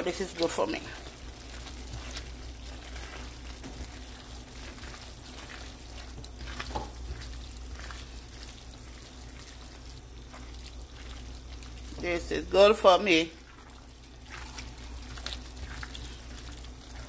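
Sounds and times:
pasta sizzling in frying pan: 0.0s - 17.0s.

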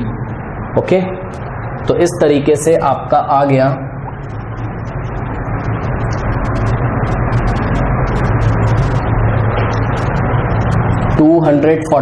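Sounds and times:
motor humming and rushing: 4.0s - 11.2s.

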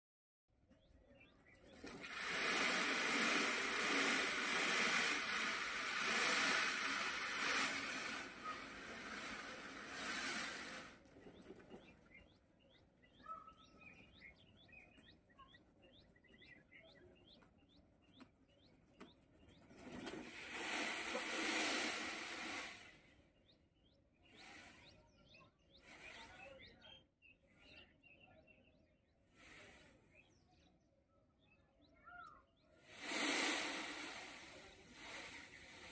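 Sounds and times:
small birds chirping: 0.6s - 35.9s
peacock feathers rustling: 1.7s - 12.0s, 19.6s - 22.9s, 32.9s - 35.9s.

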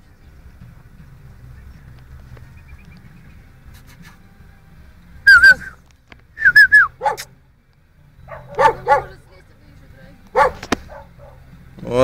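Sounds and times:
person whistling high notes: 5.3s - 5.8s, 6.4s - 7.0s
small dog barking: 7.0s - 7.3s, 8.3s - 9.2s, 10.3s - 11.4s.

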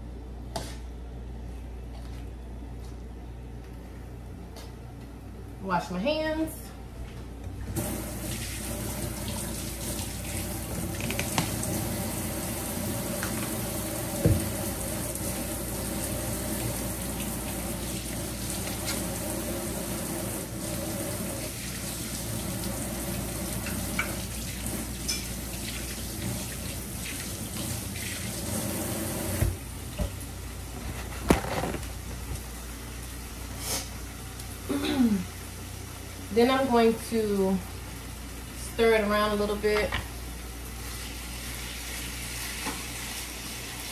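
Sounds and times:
kitchen tap running: 7.8s - 30.3s.

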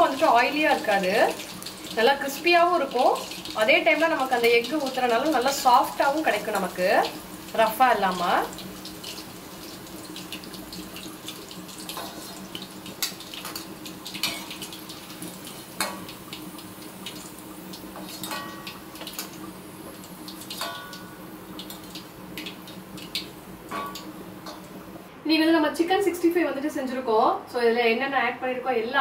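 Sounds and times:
clicks and light crackles: 8.8s - 24.8s.

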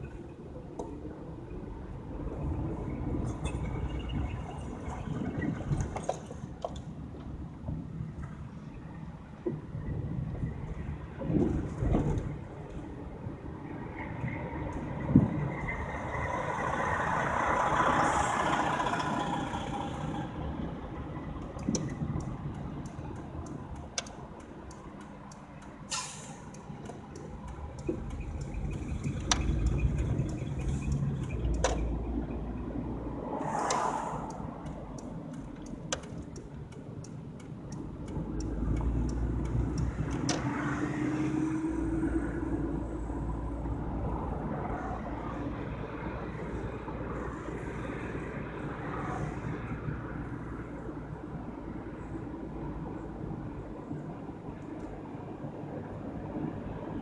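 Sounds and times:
car interior rumble: 0.0s - 57.0s
turn signal ticking: 20.7s - 43.8s
road hiss: 25.8s - 26.8s, 33.2s - 35.2s.

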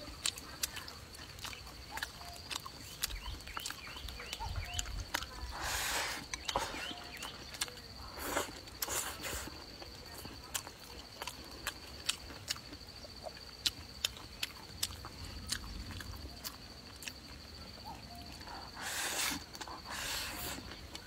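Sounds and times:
wet chewing: 0.0s - 21.0s
slurping: 0.2s - 9.8s, 18.1s - 21.0s.

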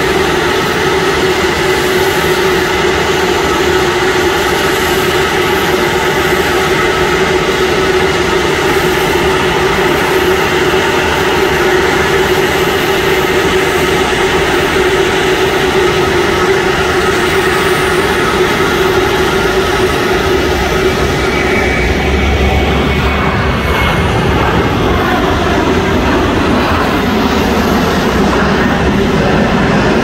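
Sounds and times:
jet aircraft engine whine: 0.0s - 30.0s.

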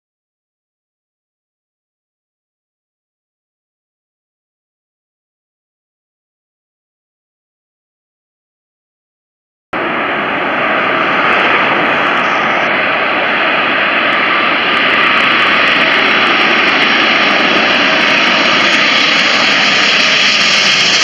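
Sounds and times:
jet airliner engines: 9.8s - 21.0s
thin high jet whine: 9.8s - 21.0s.

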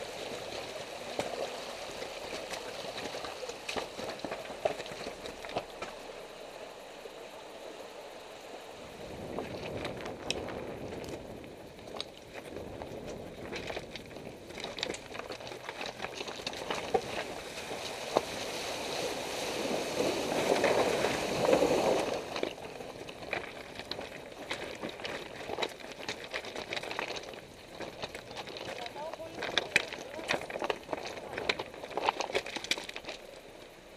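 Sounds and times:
wheel splashing through stream: 0.0s - 33.9s
tyre crunching over stones: 0.4s - 6.1s, 9.3s - 18.6s, 19.7s - 33.7s
stones clicking and knocking: 22.4s - 33.4s.

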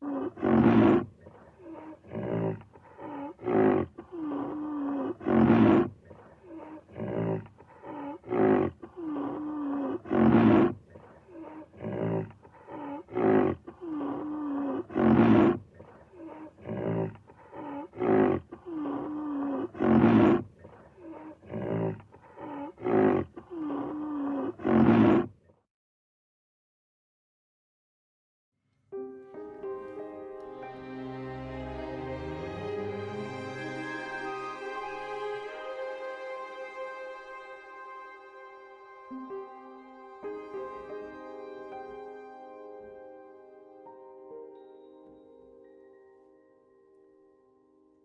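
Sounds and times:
rhinoceros grunting and growling: 0.0s - 25.4s.

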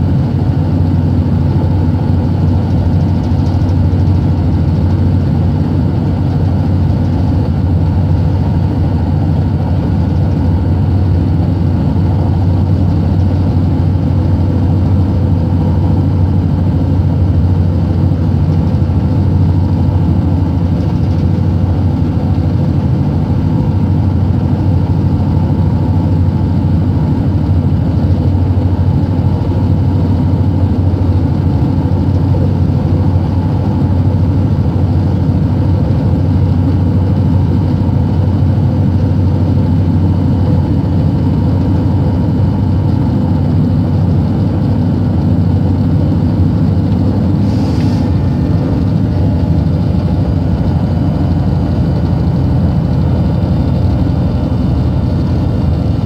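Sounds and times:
train rumbling inside carriage: 0.0s - 56.0s.

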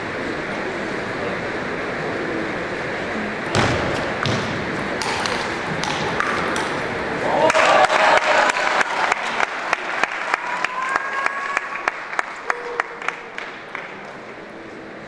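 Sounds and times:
audience applause: 5.6s - 14.5s.

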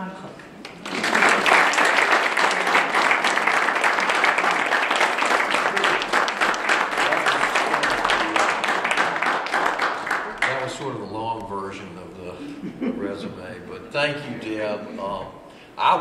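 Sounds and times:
audience applauding: 0.6s - 11.0s.

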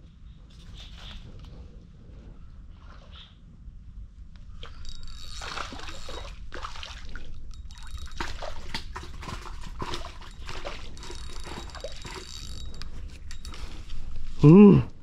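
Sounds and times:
fish splashing at water surface: 5.4s - 12.3s.

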